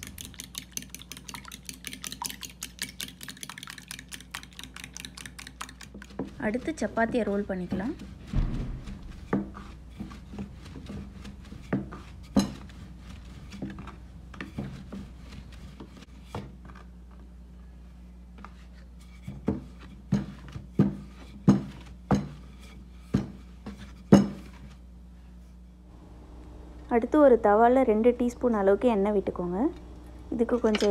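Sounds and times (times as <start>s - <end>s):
rolling pin rubbing on dough: 5.8s - 16.4s
wood knocking on wood: 7.7s - 11.0s.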